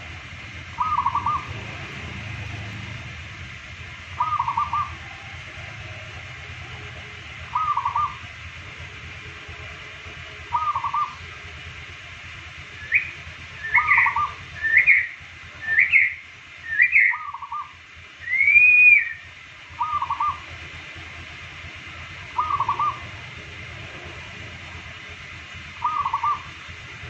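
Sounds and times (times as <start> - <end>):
dove cooing: 0.7 - 3.0, 4.1 - 8.3, 10.5 - 11.2, 19.8 - 20.5, 22.3 - 23.4, 25.7 - 26.6
rising whistled notes: 12.8 - 20.4.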